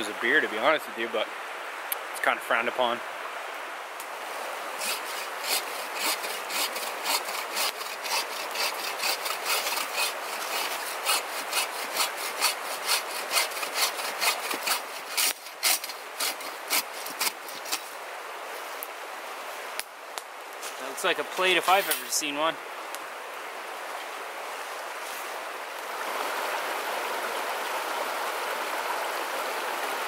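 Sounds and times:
rhythmic sawing strokes: 4.8 - 17.9.

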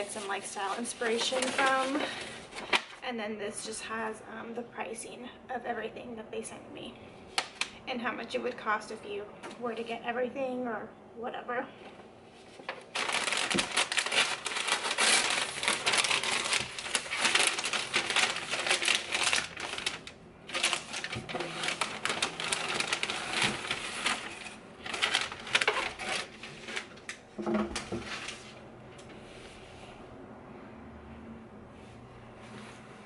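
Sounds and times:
tissue paper crinkling and rustling: 0.0 - 3.0, 12.6 - 27.1.

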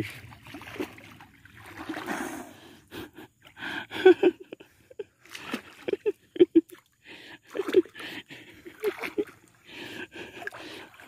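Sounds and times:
person breathing hard and gasping: 9.6 - 11.0.

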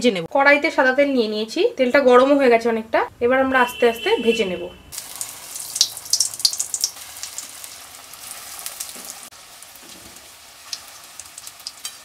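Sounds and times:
food deep-frying in oil: 4.9 - 12.0.

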